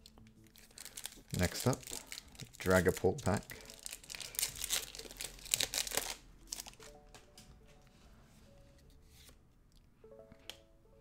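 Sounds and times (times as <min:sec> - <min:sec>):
foil wrapper crinkling and tearing: 0:00.0 - 0:06.9
soft music with plucked notes: 0:06.3 - 0:11.0.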